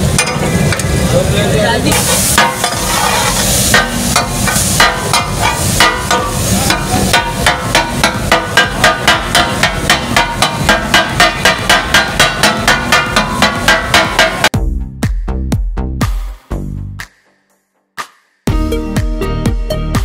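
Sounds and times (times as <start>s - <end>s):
metal spatulas striking a griddle: 0.0s - 1.0s, 1.9s - 14.5s.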